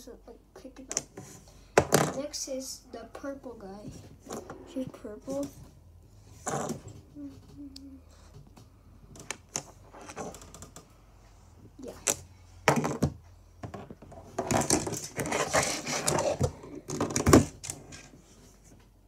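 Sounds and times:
plastic figures clattering on table: 0:12.1 - 0:18.1.

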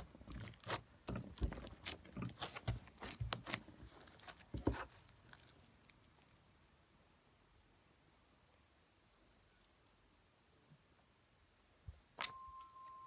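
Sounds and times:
slime squishing and popping: 0:00.0 - 0:06.3.

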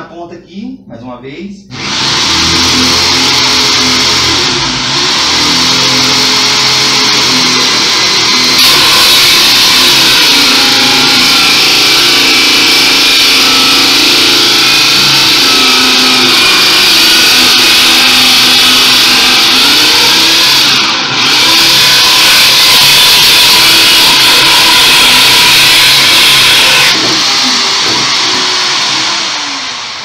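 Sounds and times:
drill cutting through wood: 0:01.7 - 0:30.0.

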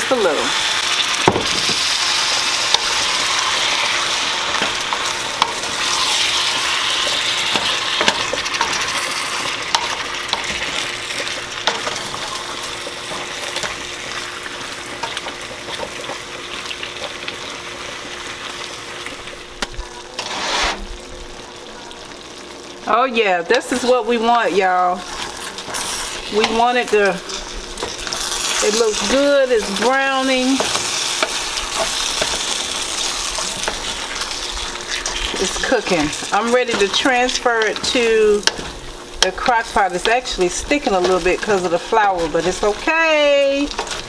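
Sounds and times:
meat sizzling in a skillet: 0:00.0 - 0:44.0
wooden spoon scraping a pan: 0:20.2 - 0:20.9, 0:23.6 - 0:44.0.

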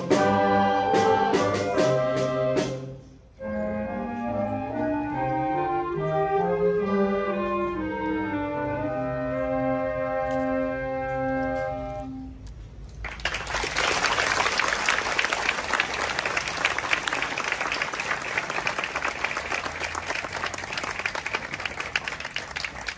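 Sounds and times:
wind band held chord: 0:00.0 - 0:12.4
audience applauding: 0:13.0 - 0:22.9.

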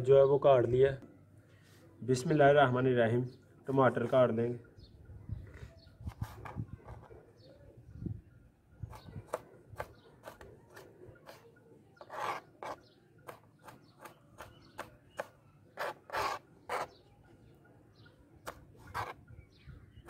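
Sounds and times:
knife scraping: 0:08.9 - 0:17.0, 0:18.5 - 0:19.2.

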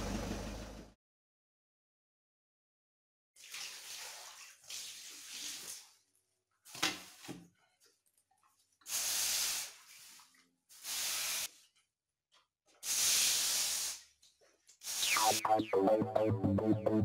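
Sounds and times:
broom swishing water on floor: 0:03.4 - 0:06.1, 0:08.4 - 0:11.9
electronic music: 0:15.0 - 0:17.0.

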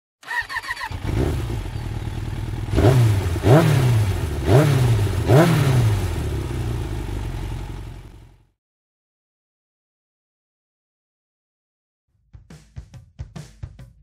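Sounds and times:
motorcycle engine idling and revving: 0:00.2 - 0:08.5.

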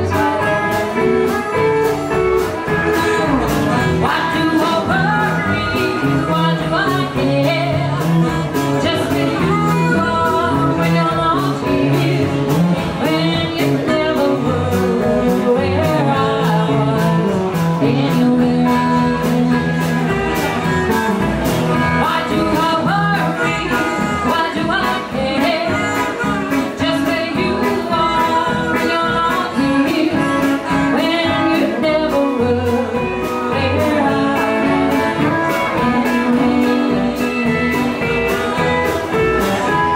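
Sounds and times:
harmonica wailing: 0:00.0 - 0:07.0, 0:07.8 - 0:13.0, 0:18.7 - 0:31.5
woman singing: 0:00.0 - 0:21.0, 0:21.7 - 0:39.9
blues band playing: 0:00.0 - 0:39.9.

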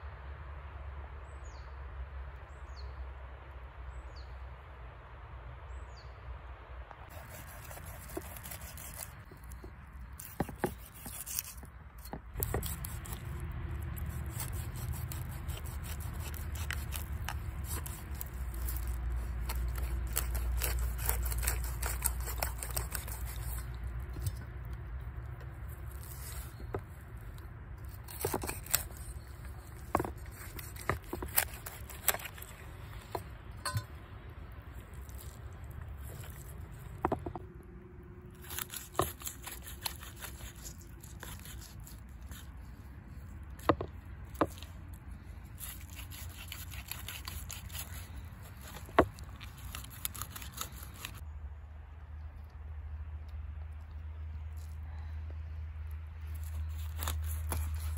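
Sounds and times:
knife scraping fish scales: 0:07.1 - 0:24.4, 0:25.7 - 0:27.0, 0:27.8 - 0:33.9, 0:38.4 - 0:42.7, 0:45.5 - 0:51.2, 0:56.3 - 0:57.9.

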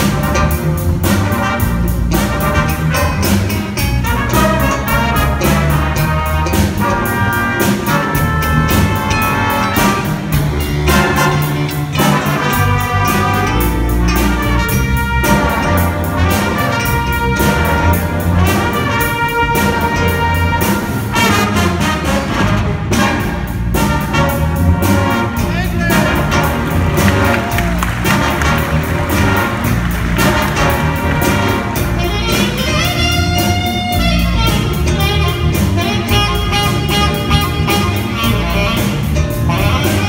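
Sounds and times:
jazz band playing: 0:00.0 - 0:40.0.

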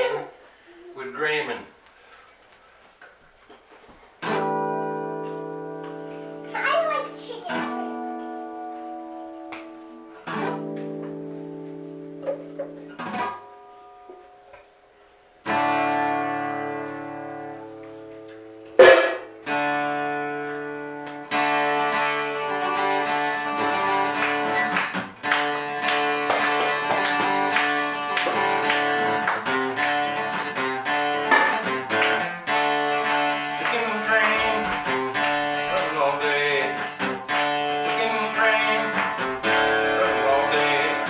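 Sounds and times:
acoustic guitar strumming: 0:04.2 - 0:41.0
sharp loud knock: 0:18.8 - 0:19.3.

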